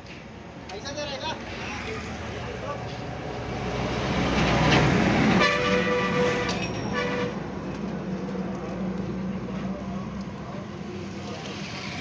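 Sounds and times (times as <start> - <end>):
vehicle passing: 1.4 - 5.4
vehicle horn honking: 5.4 - 7.4.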